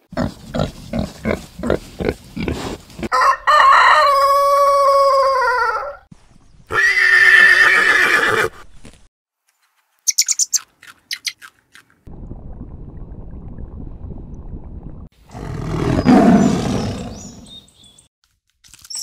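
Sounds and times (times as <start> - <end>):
horse whinnying: 6.7 - 8.5.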